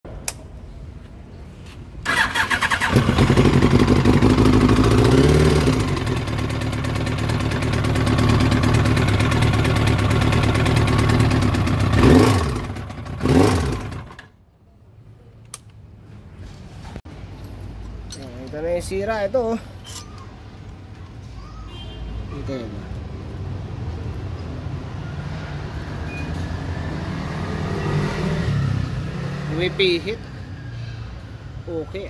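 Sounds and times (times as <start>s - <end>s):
motorcycle engine starting and revving: 2.0s - 14.4s, 26.2s - 30.1s.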